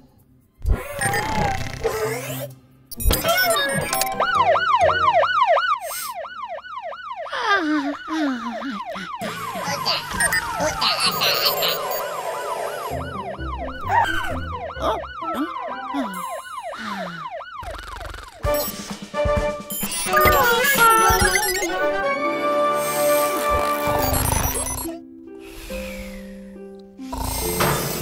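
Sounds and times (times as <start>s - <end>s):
cartoon music: 3.0s - 5.6s, 7.8s - 25.1s
cartoon siren yelping: 3.2s - 18.4s, 20.0s - 21.9s.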